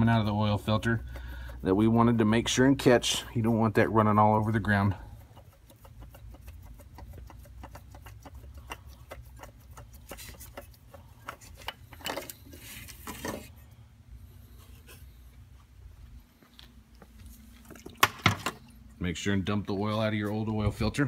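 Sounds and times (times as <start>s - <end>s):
low steady hum: 0.0s - 21.0s
metal canister clicks and rubs: 4.8s - 13.5s.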